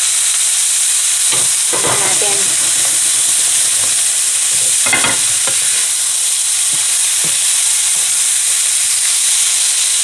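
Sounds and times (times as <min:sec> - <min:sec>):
stir-fry sizzling in a pan: 0:00.0 - 0:10.0
spatula scraping and knocking pan: 0:01.2 - 0:07.6.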